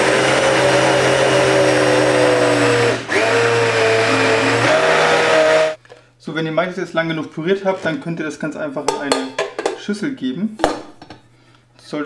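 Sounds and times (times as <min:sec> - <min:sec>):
blender motor pureeing: 0:00.0 - 0:05.8.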